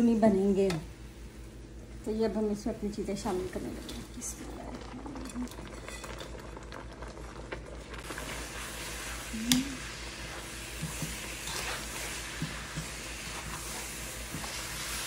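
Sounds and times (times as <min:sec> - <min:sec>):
faint sizzle: 0:00.0 - 0:15.0
wooden spoon scraping metal wok: 0:10.2 - 0:15.0.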